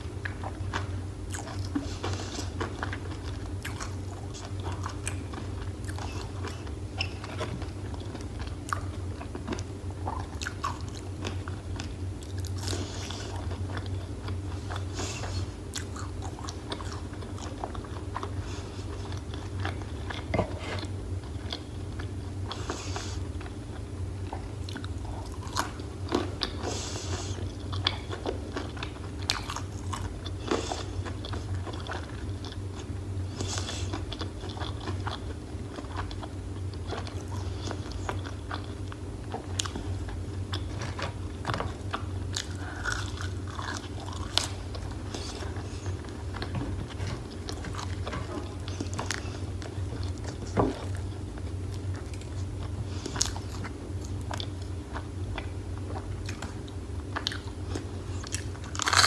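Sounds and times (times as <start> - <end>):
chewing crispy fried food: 0.0 - 59.0
steady low hum: 0.0 - 59.0.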